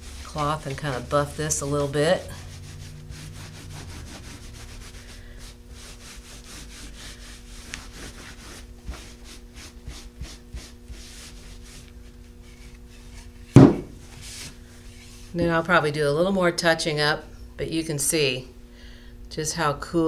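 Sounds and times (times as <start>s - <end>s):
cloth rubbing wood: 0.0s - 15.6s
faint steady hum: 0.0s - 20.0s.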